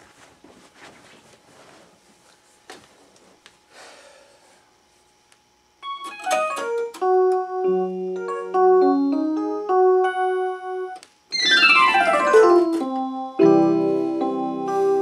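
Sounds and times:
faint shuffles: 0.0 - 3.7
electronic keyboard piano: 5.8 - 15.0.

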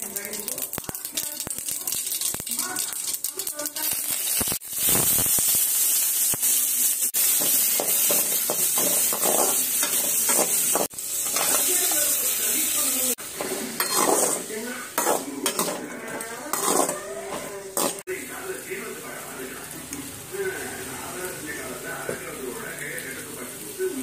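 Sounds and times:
vegetables sizzling in hot oil: 0.0 - 24.0
metal spoon clattering against pan: 7.4 - 11.7, 13.4 - 18.0.

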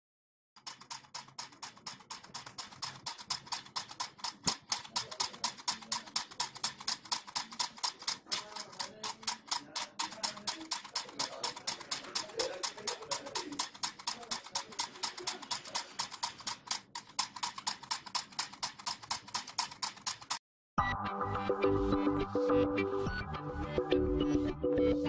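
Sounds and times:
solenoid engine clicking: 0.6 - 20.4.

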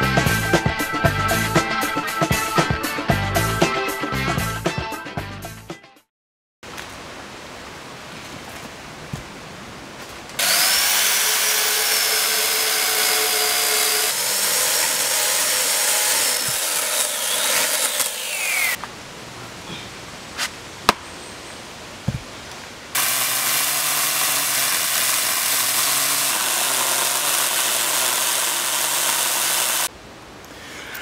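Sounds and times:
electric chainsaw cutting log: 10.4 - 18.8, 23.0 - 29.9.

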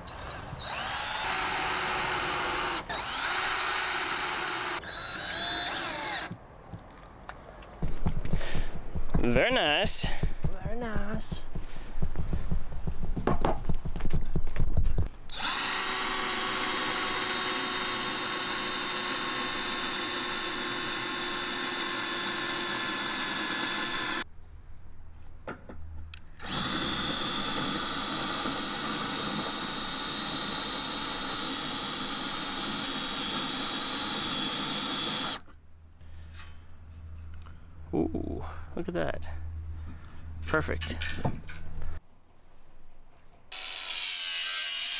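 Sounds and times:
cordless drill boring through steel: 0.0 - 6.3, 15.2 - 24.3, 26.4 - 35.4, 43.5 - 44.9.

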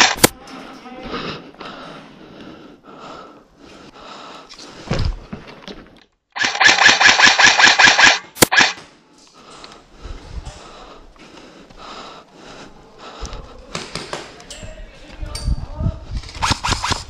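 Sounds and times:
airsoft rifle firing: 0.0 - 0.3, 6.4 - 8.8.

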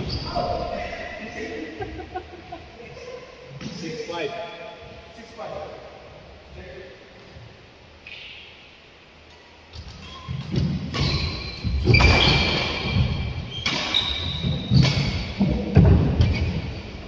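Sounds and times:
shoe squeaks: 0.0 - 0.6, 9.8 - 15.4
rackets hitting shuttlecock: 9.8 - 16.6.

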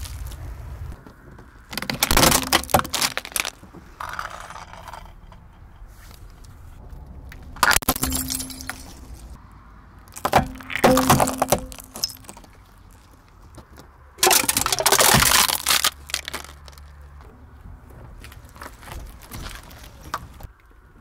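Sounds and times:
seashells crunching: 1.7 - 5.0, 10.1 - 13.2, 14.2 - 16.9
plastic yo-yo cracking under tyre: 1.7 - 5.4, 14.2 - 17.0.

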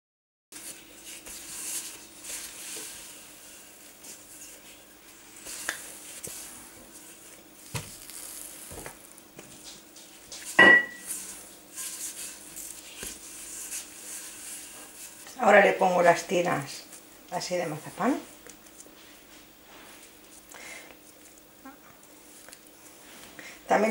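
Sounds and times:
rolling pin on dough: 0.6 - 18.0.

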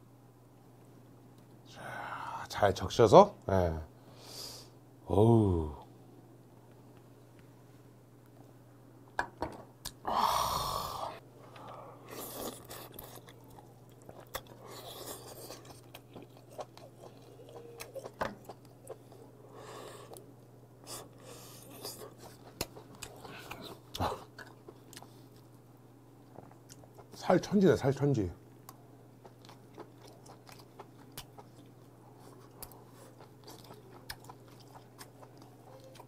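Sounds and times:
breathy exhale: 10.1 - 12.0
close chewing and mouth sounds: 11.4 - 27.5, 28.6 - 36.0.

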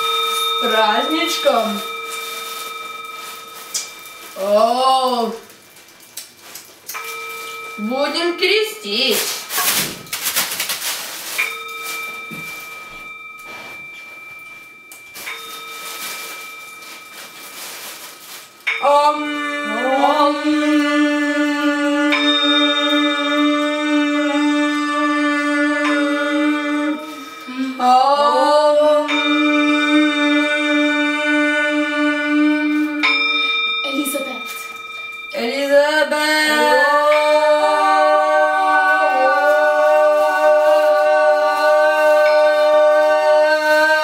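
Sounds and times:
bell ringing: 0.0 - 5.5, 6.9 - 44.0
choir singing held notes: 35.4 - 44.0.

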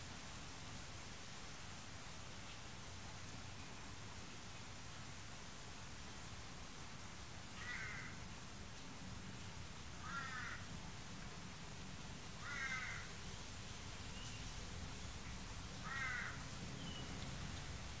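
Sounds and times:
distant crow cawing: 7.6 - 8.2, 10.0 - 10.7, 12.4 - 13.2, 15.8 - 16.5.

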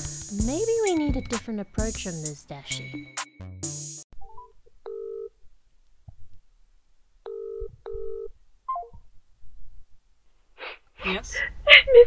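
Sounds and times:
telephone ringback tone: 4.9 - 5.3, 7.3 - 8.3.

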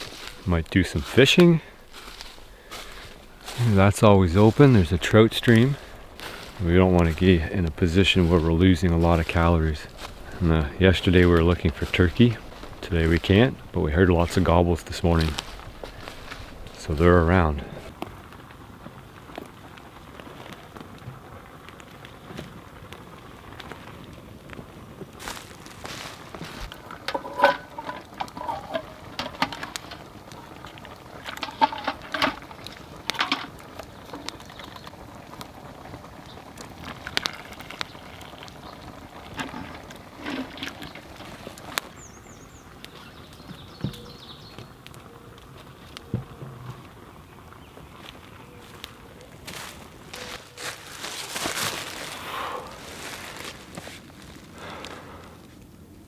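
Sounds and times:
footsteps in dry leaves: 0.0 - 17.9, 25.1 - 29.0, 47.9 - 55.3
campfire crackling and popping: 0.0 - 56.0
metal pot and cup clanking: 26.9 - 29.8, 31.2 - 32.4.

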